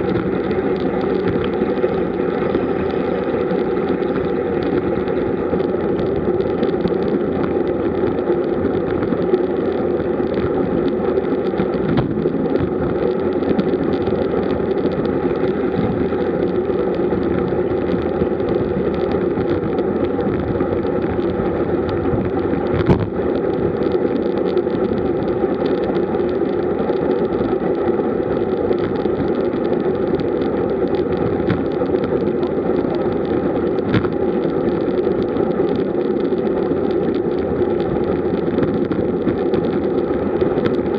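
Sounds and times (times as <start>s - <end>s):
wind rush: 0.0s - 26.1s
bike tyre noise: 0.0s - 40.9s.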